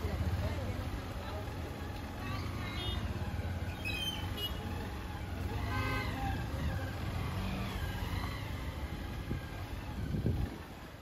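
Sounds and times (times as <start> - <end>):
road traffic rumble: 0.0 - 11.0
vehicle horn: 4.1 - 4.6, 5.6 - 6.4.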